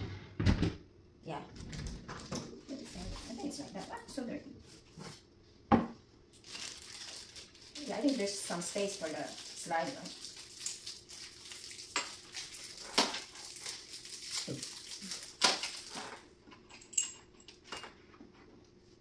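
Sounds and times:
hardware clicking and clinking: 0:15.4 - 0:18.0.

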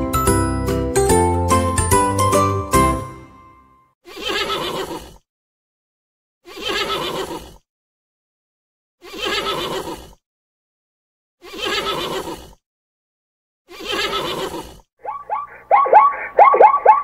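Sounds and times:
horse whinnying: 0:04.1 - 0:05.2, 0:06.5 - 0:07.6, 0:09.0 - 0:10.2, 0:13.7 - 0:16.6.

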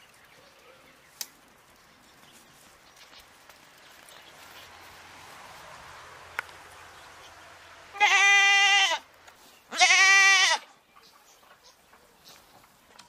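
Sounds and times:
goat bleating: 0:07.9 - 0:09.1, 0:09.7 - 0:10.7.

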